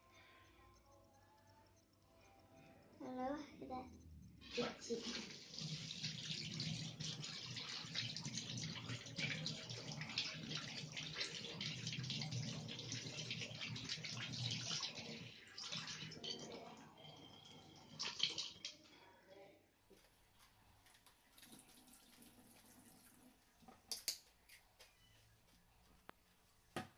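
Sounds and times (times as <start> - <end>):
tap water running into sink: 4.5 - 18.9, 21.3 - 24.2.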